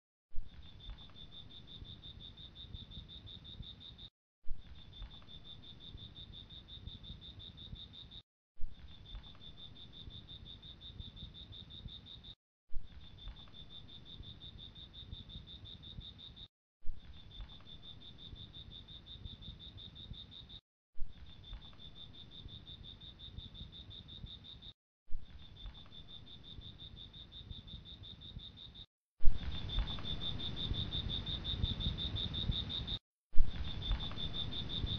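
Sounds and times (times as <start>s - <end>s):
crickets trilling: 25.3s - 34.9s.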